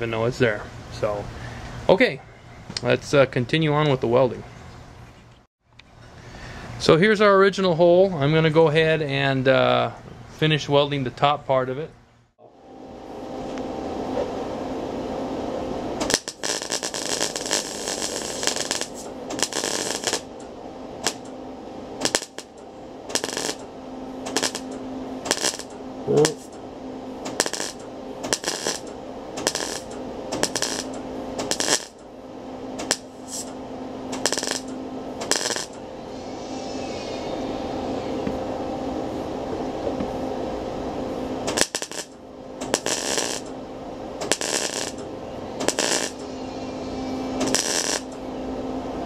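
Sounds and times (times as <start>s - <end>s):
steady hum: 0.0s - 49.0s
welding arc crackling: 16.0s - 21.3s, 22.0s - 26.6s, 27.2s - 32.0s, 32.8s - 35.8s, 41.4s - 43.5s, 44.2s - 48.2s.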